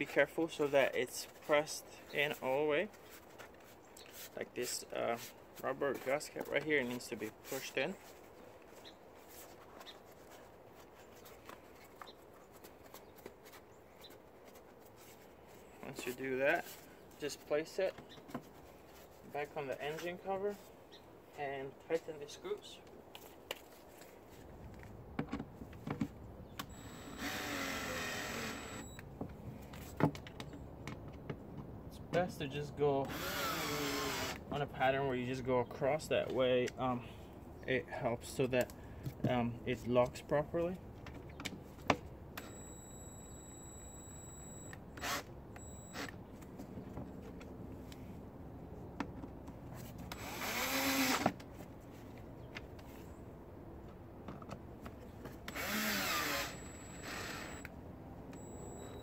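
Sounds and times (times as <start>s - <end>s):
screwdriver whirring rasp: 26.7s - 29.0s, 33.1s - 34.4s, 50.1s - 51.3s, 55.5s - 57.7s.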